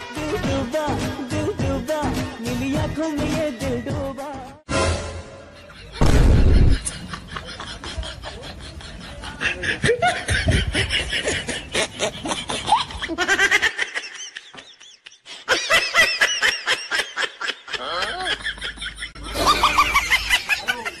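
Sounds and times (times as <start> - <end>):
high-pitched laughter: 5.5 - 21.0.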